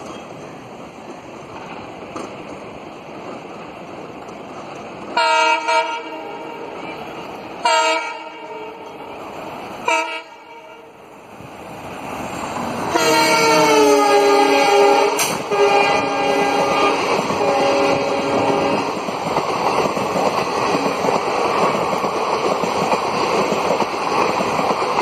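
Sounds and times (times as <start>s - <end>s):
diesel engine and train noise: 0.0s - 25.0s
locomotive air horn blasts: 5.2s - 6.7s, 7.6s - 9.0s, 9.8s - 11.0s, 12.9s - 18.9s.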